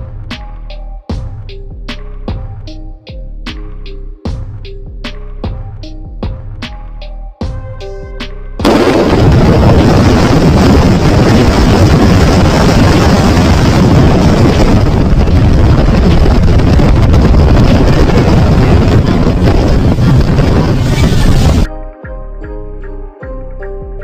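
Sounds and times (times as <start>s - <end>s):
wind on phone microphone: 8.7s - 21.7s.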